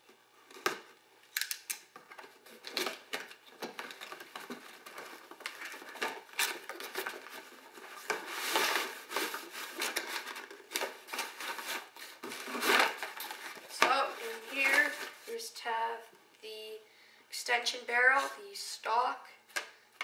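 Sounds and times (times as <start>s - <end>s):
cardboard scraping and rustling: 2.1s - 15.4s.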